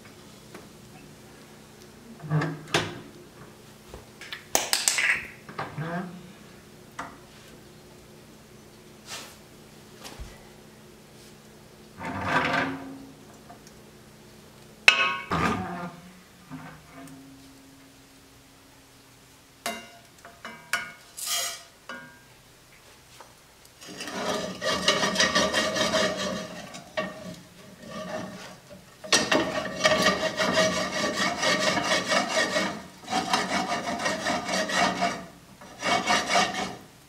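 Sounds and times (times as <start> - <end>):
metal pot scraping on grate: 12.0 - 13.0, 14.9 - 17.2, 20.5 - 22.0, 23.8 - 36.9.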